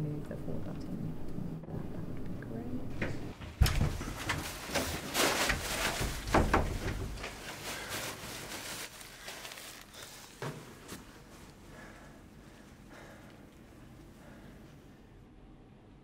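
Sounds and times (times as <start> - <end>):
plastic bag rustling: 3.6 - 11.9.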